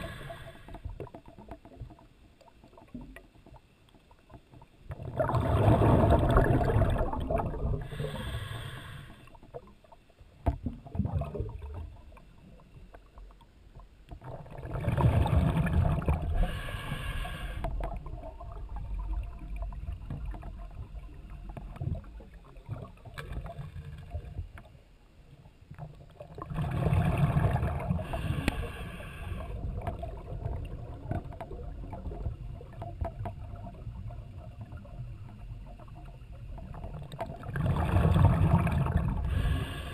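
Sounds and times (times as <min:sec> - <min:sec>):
steady breathing hiss: 0:00.0 - 0:00.9, 0:07.8 - 0:09.4, 0:16.3 - 0:17.8, 0:28.0 - 0:29.8, 0:39.2 - 0:39.9
underwater exhalation bubbles: 0:04.9 - 0:08.3, 0:10.7 - 0:11.9, 0:14.2 - 0:16.7, 0:26.2 - 0:28.7, 0:37.2 - 0:39.9.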